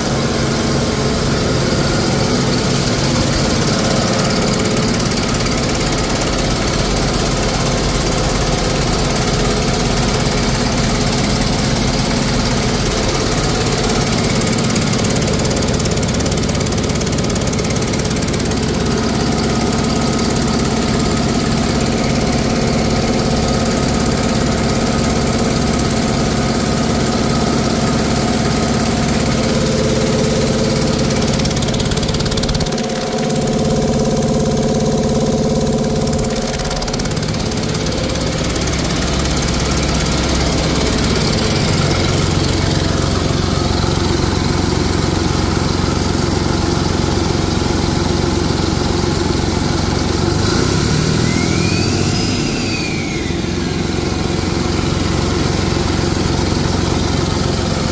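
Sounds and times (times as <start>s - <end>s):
diesel engine idling: 0.0s - 57.9s
brief whistle: 51.2s - 53.5s.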